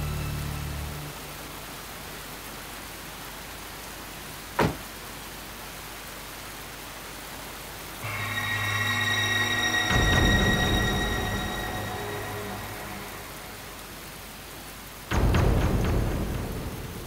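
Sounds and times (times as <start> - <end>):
heavy rain hiss: 0.0 - 17.0
car door shutting: 4.6 - 4.9
eerie sustained music chord: 8.0 - 14.4.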